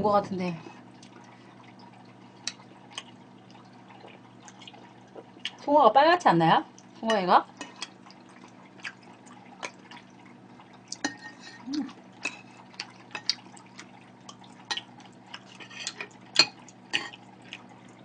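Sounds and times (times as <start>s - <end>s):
closed-mouth hum: 11.6s - 12.1s.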